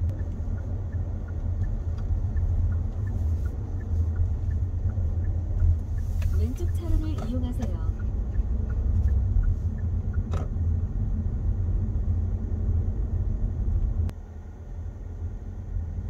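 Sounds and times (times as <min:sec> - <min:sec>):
car cabin road rumble: 0:00.0 - 0:16.0
faint ticks: 0:00.1 - 0:10.3.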